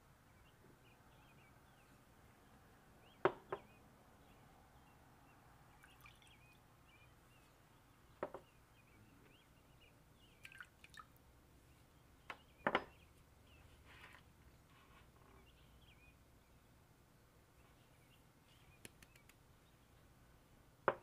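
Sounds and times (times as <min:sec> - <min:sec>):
liquid splashing and dripping: 0:10.4 - 0:11.2.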